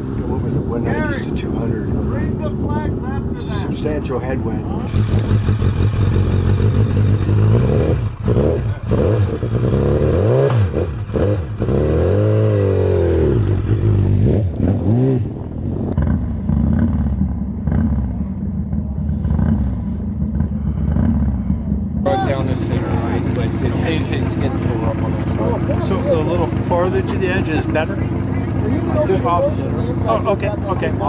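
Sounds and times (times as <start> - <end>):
motorcycle engine revving and idling: 0.0 - 31.0.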